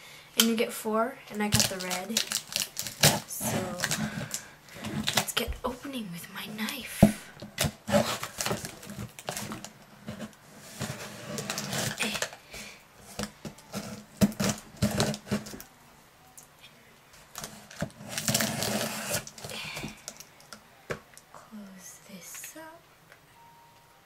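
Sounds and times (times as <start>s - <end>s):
knife cutting packing tape: 7.6s - 9.7s, 10.8s - 12.4s, 13.2s - 15.7s, 17.4s - 19.5s.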